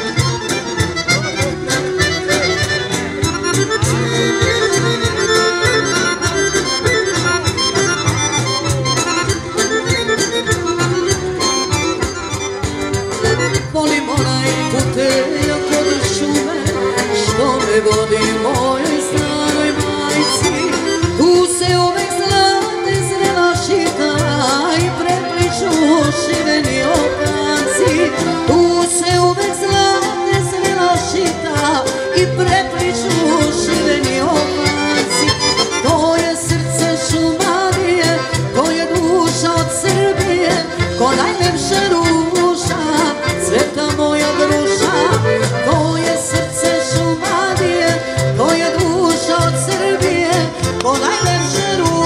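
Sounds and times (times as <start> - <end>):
accordions playing: 0.0 - 52.0
folk band playing: 0.0 - 52.0
woman singing: 13.6 - 52.0.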